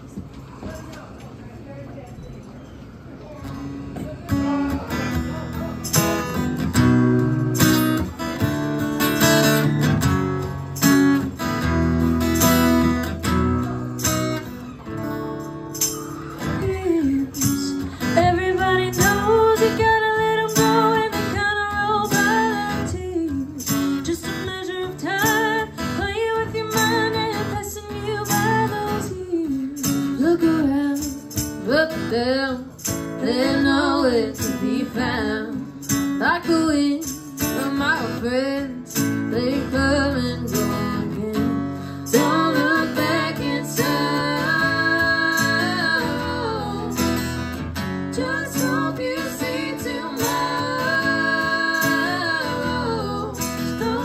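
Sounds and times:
strummed acoustic guitar: 3.4s - 54.0s
women singing: 15.8s - 54.0s.

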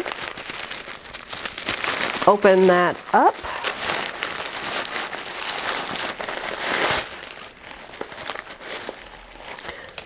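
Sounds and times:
tissue paper rustling: 0.0s - 10.0s.

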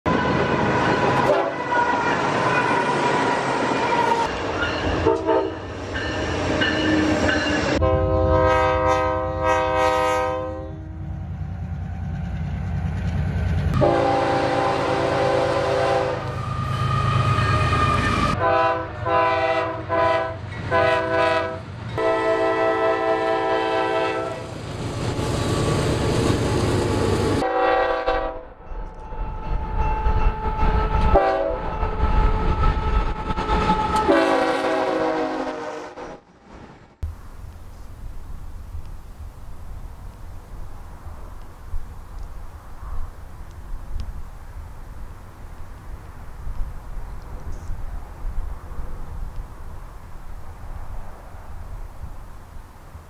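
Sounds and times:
train air horn blasts: 0.1s - 4.3s, 5.0s - 5.7s, 7.8s - 11.1s, 13.8s - 24.5s, 27.4s - 28.5s, 29.2s - 36.2s
low rumble of passing train: 0.1s - 53.0s.

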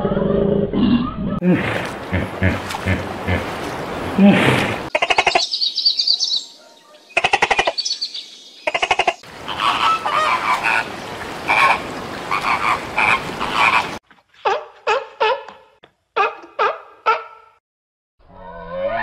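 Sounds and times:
flamingos honking and calling: 8.6s - 14.0s.

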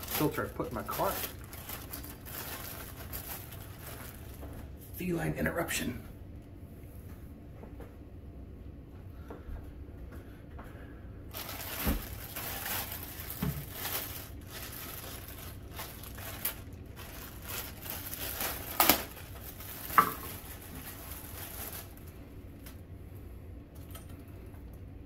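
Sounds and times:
plastic bag crinkling: 0.0s - 4.7s, 11.3s - 22.7s.

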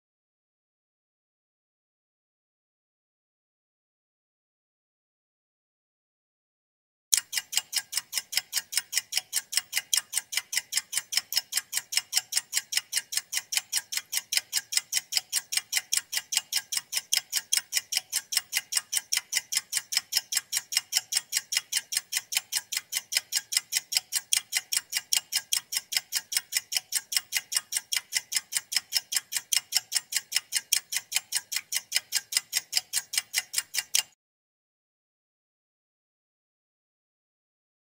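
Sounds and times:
stopwatch ticking: 7.1s - 34.2s.

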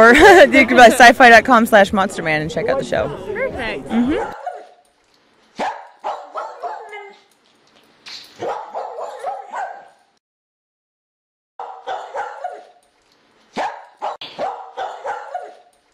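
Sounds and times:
dog barking: 4.2s - 4.8s, 5.6s - 7.2s, 8.4s - 10.0s, 11.6s - 12.8s, 13.6s - 15.7s.

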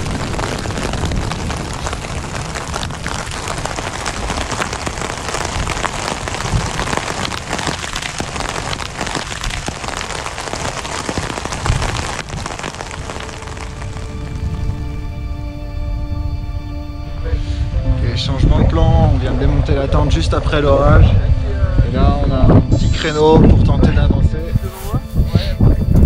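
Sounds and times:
hail and rain hitting tent fabric: 0.0s - 14.9s.

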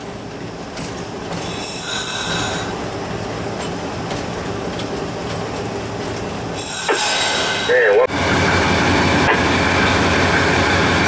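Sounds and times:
locomotive engine droning: 0.0s - 11.0s
wheels rumbling on rails: 0.0s - 11.0s
high wheel squeal with hiss: 1.4s - 2.7s, 6.6s - 8.0s.

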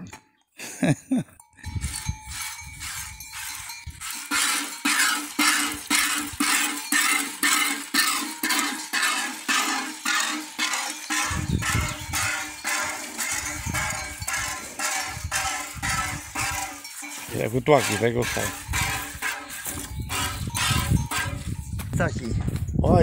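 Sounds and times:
metal bucket clinking: 1.6s - 22.5s
milk squirting into metal bucket: 2.8s - 21.3s
footsteps on dirt: 10.7s - 22.8s.

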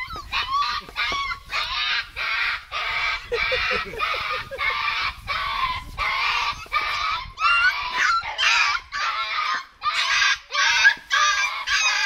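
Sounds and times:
puppy yelping: 0.0s - 2.0s, 7.4s - 12.0s.

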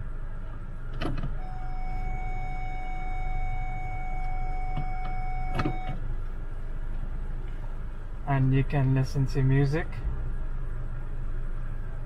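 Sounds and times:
low engine hum: 0.0s - 12.0s
electronic reverse warning tone: 1.4s - 6.0s.

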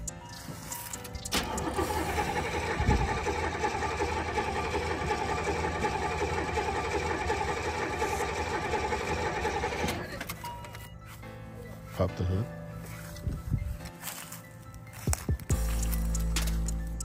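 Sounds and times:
starter motor cranking engine: 1.1s - 10.4s.

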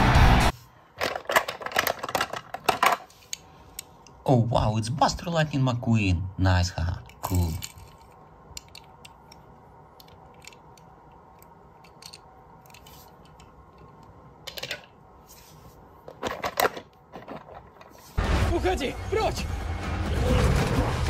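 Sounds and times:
toy car clicking and clattering: 1.0s - 3.4s, 10.0s - 14.9s, 16.1s - 18.0s.

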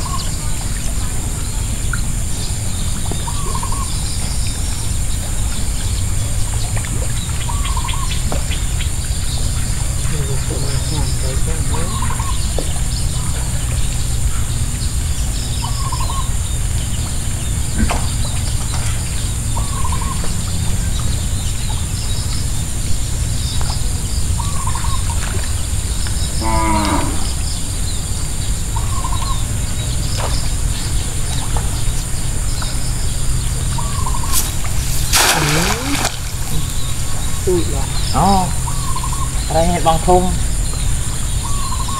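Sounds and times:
high hum: 26.8s - 41.9s.

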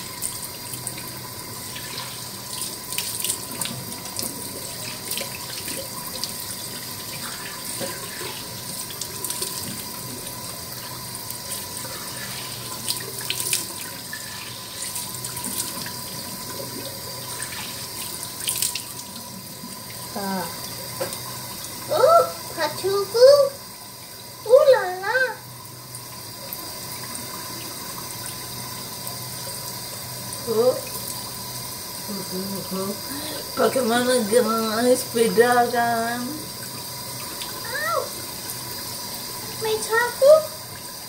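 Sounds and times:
tap running into sink: 1.7s - 12.0s, 20.6s - 21.4s.

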